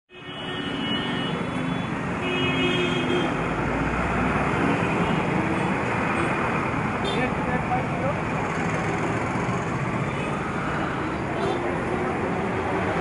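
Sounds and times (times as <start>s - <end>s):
road traffic noise: 0.1s - 13.0s.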